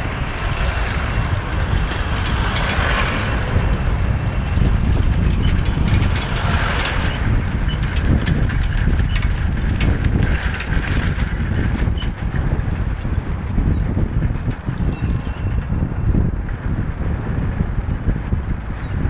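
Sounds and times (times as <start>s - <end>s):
engine and road rumble: 0.0s - 19.0s
wind buffeting microphone: 0.0s - 19.0s
small rattles: 0.4s - 12.4s.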